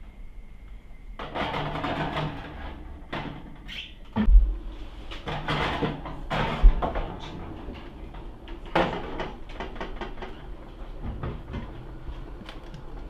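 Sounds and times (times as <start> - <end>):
metal baking tray clattering: 1.2 - 3.6, 5.2 - 10.5
metallic clatters and knocks: 1.2 - 4.4, 5.1 - 11.8.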